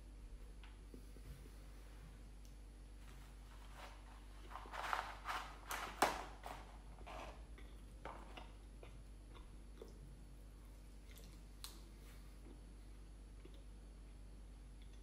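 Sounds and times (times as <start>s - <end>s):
packaging rustling and clattering: 3.5s - 7.3s.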